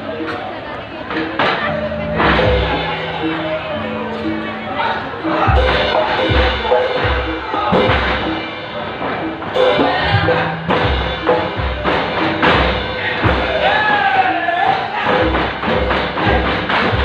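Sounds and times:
gamelan music: 0:00.0 - 0:17.0
ringing metallophone notes: 0:01.2 - 0:14.4
deep drum beat: 0:02.0 - 0:04.5, 0:05.3 - 0:08.5, 0:09.4 - 0:13.9, 0:15.1 - 0:17.0.

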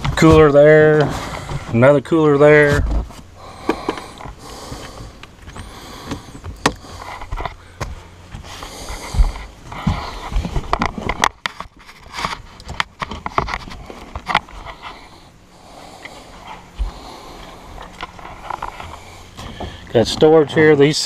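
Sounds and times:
clicks and knocks inside boat: 0:00.0 - 0:01.9, 0:02.5 - 0:08.5, 0:09.2 - 0:14.6, 0:17.8 - 0:21.0
breathing close to microphone: 0:01.0 - 0:01.8, 0:03.3 - 0:10.9, 0:13.8 - 0:20.0.

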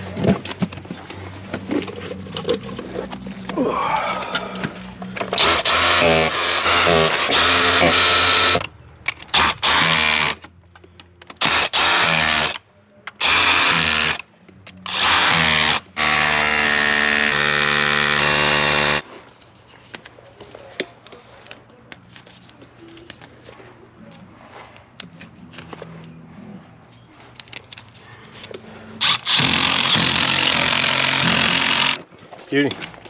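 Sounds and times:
cordless power tool whining: 0:05.2 - 0:08.7, 0:29.0 - 0:32.0.

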